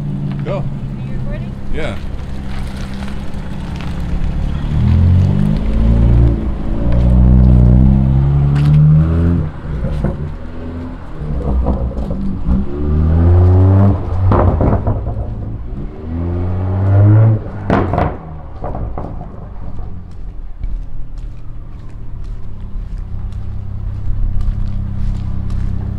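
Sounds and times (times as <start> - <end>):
car exhaust accelerating: 0.0 - 25.9
loud exhaust crack: 1.2 - 20.9
exhaust pops: 1.8 - 16.1, 16.8 - 21.0.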